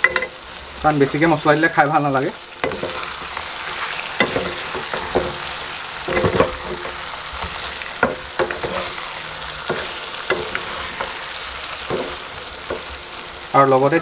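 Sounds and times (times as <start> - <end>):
frying hiss: 0.0 - 14.0
wooden spatula scraping pan: 2.7 - 13.0.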